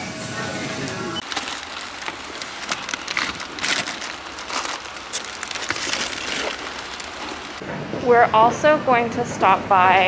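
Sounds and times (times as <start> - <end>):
shopping bags rustling: 1.2 - 7.6.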